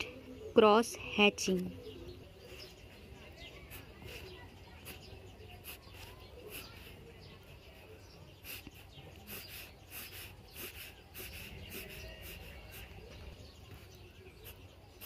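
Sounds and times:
pencil scratching on paper: 0:02.4 - 0:07.0, 0:08.4 - 0:15.0.

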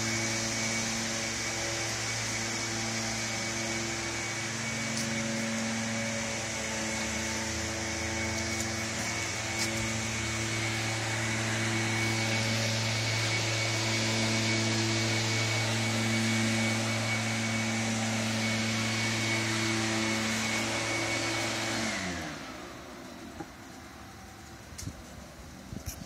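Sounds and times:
machine motor drone: 0:00.0 - 0:24.6.

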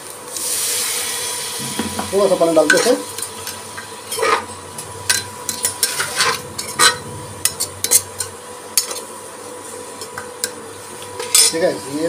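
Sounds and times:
metal spoon scraping pot: 0:01.7 - 0:09.1.

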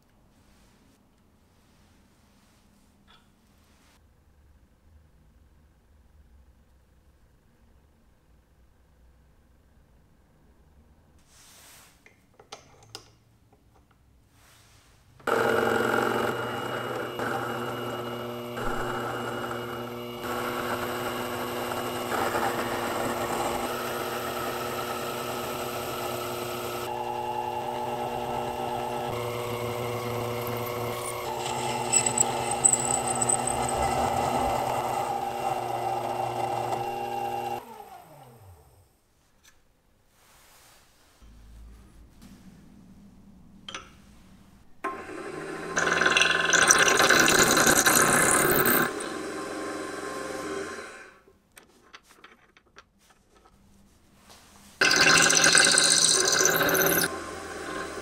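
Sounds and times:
metal lathe running: 0:15.3 - 0:37.6, 0:45.5 - 0:50.9, 0:54.8 - 0:58.0.

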